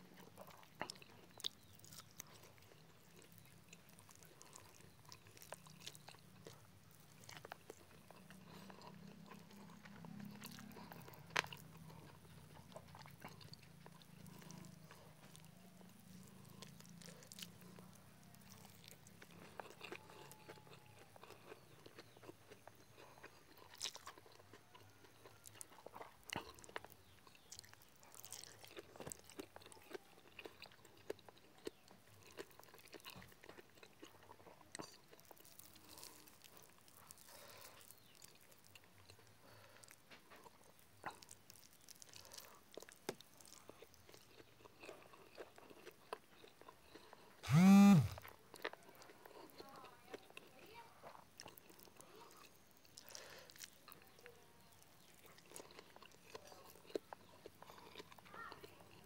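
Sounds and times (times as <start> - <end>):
chewing and mouth clicks: 0.0 - 59.0.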